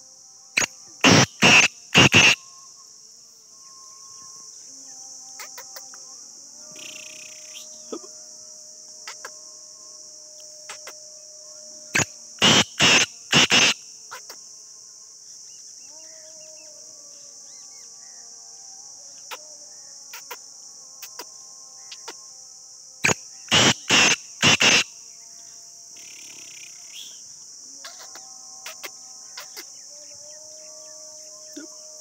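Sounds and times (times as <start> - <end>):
francolin calling: 0.0 - 2.9, 3.5 - 6.1, 6.7 - 8.2, 9.0 - 9.7, 10.4 - 14.4, 19.2 - 20.4, 21.0 - 22.2, 23.0 - 24.9, 26.0 - 32.0
crickets chirping: 0.0 - 32.0.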